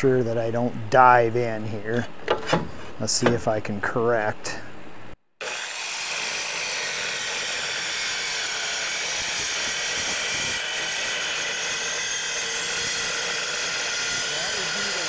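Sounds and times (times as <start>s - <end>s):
circular saw cutting steel: 5.4s - 15.0s.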